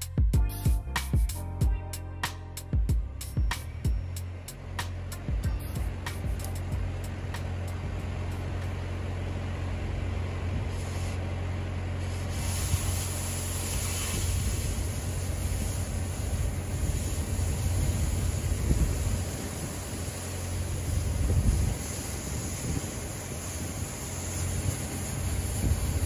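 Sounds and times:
low steady hum: 0.0 - 26.0
cutting torch hissing: 10.5 - 26.0.

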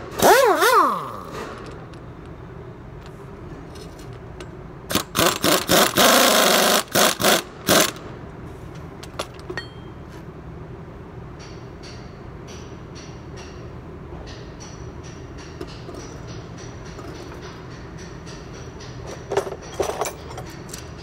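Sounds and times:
pneumatic impact wrench: 0.0 - 1.9, 4.9 - 8.2.

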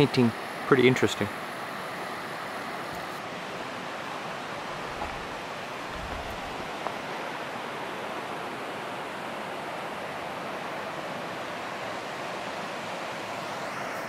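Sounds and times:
river rushing over rocks: 0.0 - 14.0.

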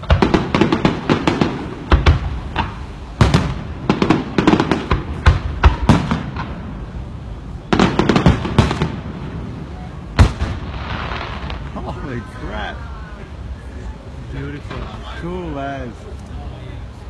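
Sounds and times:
low rumbles: 0.0 - 17.0.

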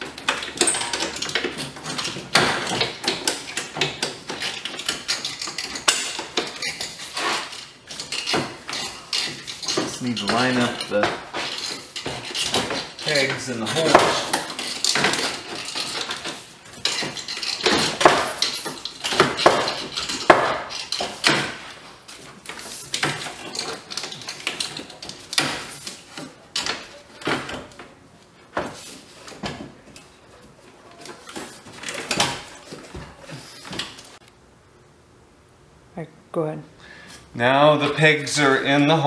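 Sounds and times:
metal and plastic parts knocking: 0.0 - 21.6.

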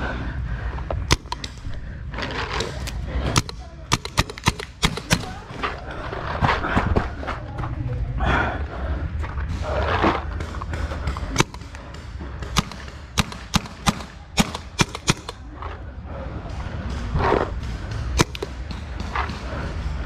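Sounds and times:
paintball markers firing: 1.0 - 5.5, 10.3 - 15.6, 16.8 - 20.0.

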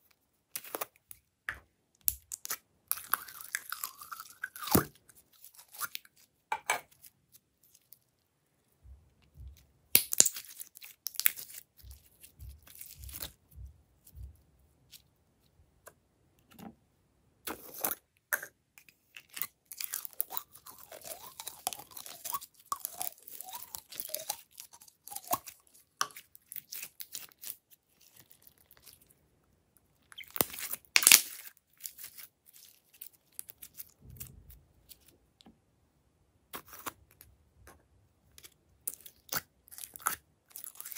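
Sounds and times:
slime crackling and squishing: 9.2 - 14.2, 19.0 - 29.1, 30.0 - 35.1, 38.3 - 40.9.

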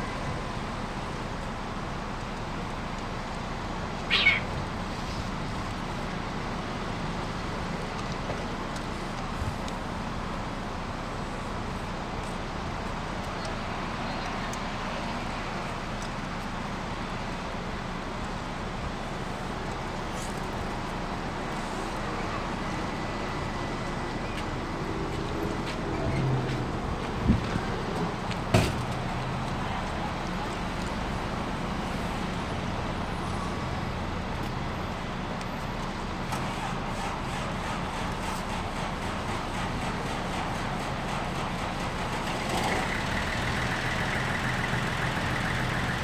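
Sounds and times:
steady background noise: 0.0 - 46.0
cat meowing: 4.1 - 4.5.

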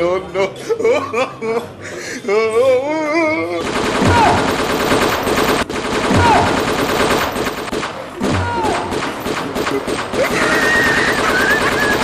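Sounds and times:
machine-gun fire: 3.6 - 12.0.

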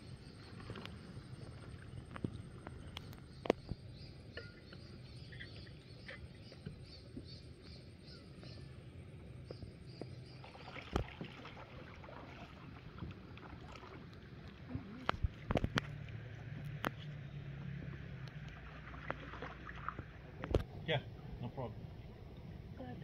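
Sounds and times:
water moving around hull: 0.0 - 23.0
paddle strokes: 9.5 - 20.7.

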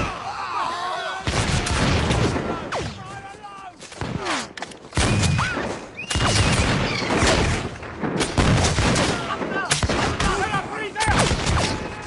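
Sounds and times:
dense gunfire: 1.2 - 3.0, 5.0 - 12.0.

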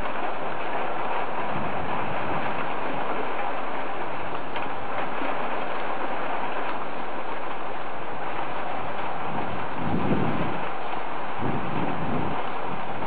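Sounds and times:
rain hissing: 0.0 - 13.0
raindrop ticks: 2.2 - 7.8.

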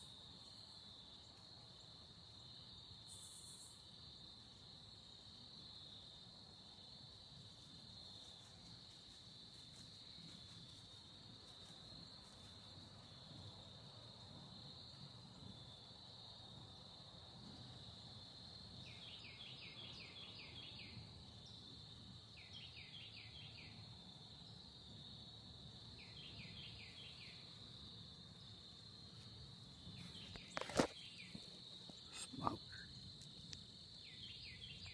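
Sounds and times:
short insect chirps: 0.0 - 4.3, 18.8 - 24.7, 25.9 - 34.9
insects trilling: 0.0 - 34.9.

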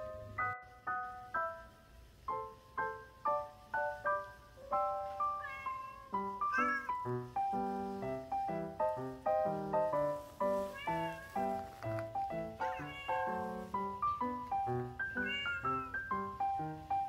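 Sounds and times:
light background music: 0.0 - 17.0
cat meowing: 4.6 - 7.1, 10.5 - 11.8, 12.4 - 14.2, 14.9 - 16.1.

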